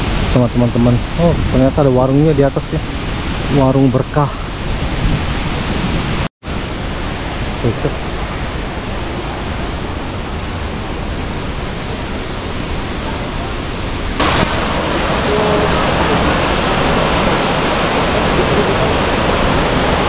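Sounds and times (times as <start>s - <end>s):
waterfall rushing: 0.0s - 20.0s
brief hiss: 14.2s - 15.0s.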